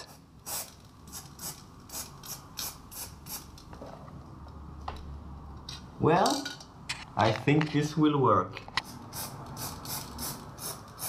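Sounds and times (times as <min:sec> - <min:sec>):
spray paint hissing strokes: 0:00.0 - 0:03.6, 0:08.8 - 0:11.0.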